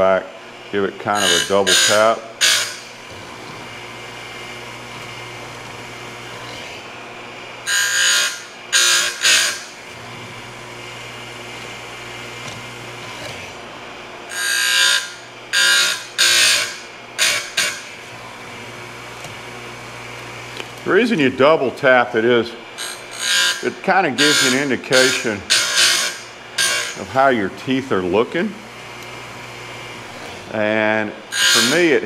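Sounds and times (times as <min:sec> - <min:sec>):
grinding wheel running: 0:22.8 - 0:32.0
high-pitched grinding strokes on chain: 0:31.3 - 0:32.0.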